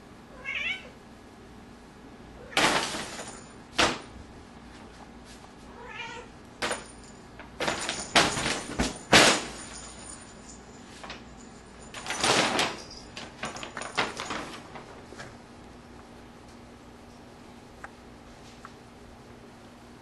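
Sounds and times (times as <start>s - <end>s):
cat meowing: 0.3s - 1.0s, 5.7s - 6.3s.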